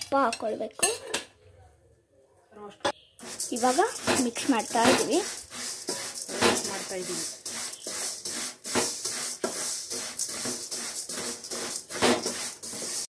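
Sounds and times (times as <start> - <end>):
spatula scraping metal pot: 3.2 - 13.0.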